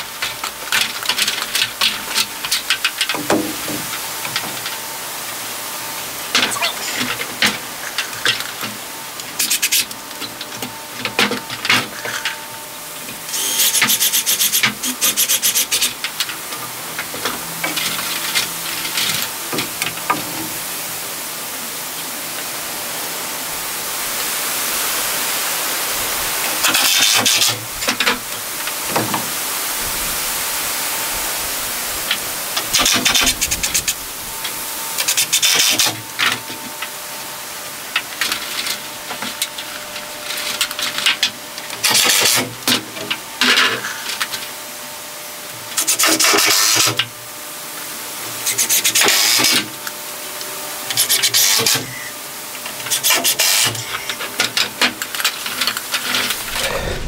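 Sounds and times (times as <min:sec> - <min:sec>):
steady hiss: 0:00.0 - 0:40.5.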